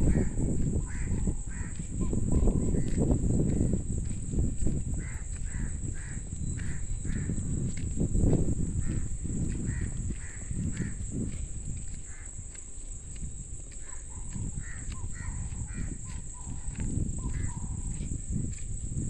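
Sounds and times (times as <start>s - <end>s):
birds calling: 0.0s - 3.7s, 5.0s - 11.2s, 13.7s - 18.0s.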